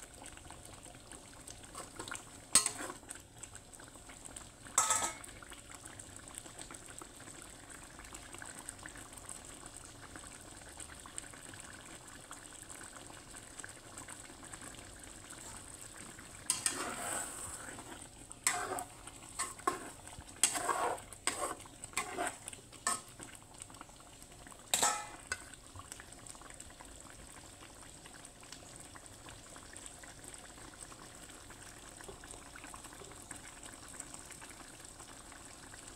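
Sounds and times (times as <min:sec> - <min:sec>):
sauce bubbling in a wok: 0:00.0 - 0:35.9
spatula scraping and knocking pan: 0:01.8 - 0:03.0, 0:16.5 - 0:23.1, 0:24.8 - 0:25.4.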